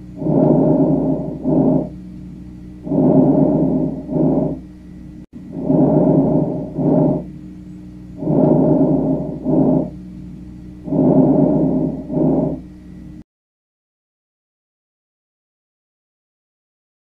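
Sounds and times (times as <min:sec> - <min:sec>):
lung breath sounds: 0:00.0 - 0:02.0, 0:02.8 - 0:04.7, 0:05.4 - 0:07.3, 0:08.2 - 0:10.0, 0:10.8 - 0:12.6
faint steady hum: 0:00.0 - 0:13.2.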